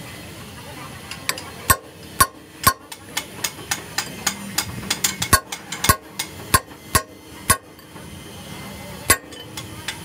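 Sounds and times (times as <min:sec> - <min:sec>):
hammer striking metal punch: 0:01.7 - 0:07.8, 0:09.1 - 0:09.6
loud ringing metal strikes: 0:01.7 - 0:07.9, 0:09.1 - 0:09.7.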